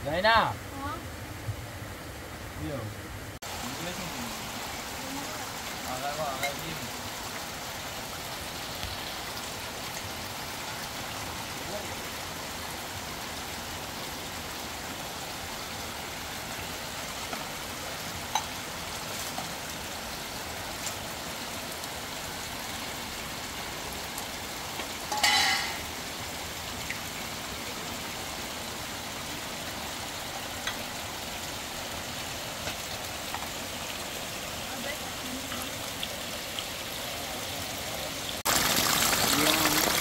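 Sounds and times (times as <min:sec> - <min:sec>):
fast river water rushing: 0:31.1 - 0:40.0.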